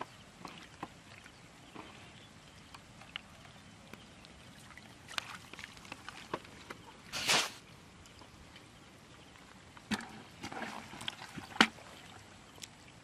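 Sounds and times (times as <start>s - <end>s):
wet clicks and drips: 2.6s - 6.8s, 12.5s - 12.8s
short loud splash: 7.1s - 7.6s.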